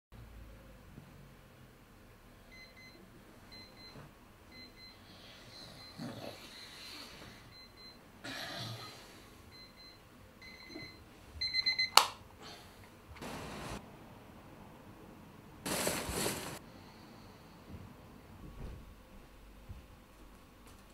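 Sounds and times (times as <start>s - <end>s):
electronic alarm beeping: 9.6s - 12.0s.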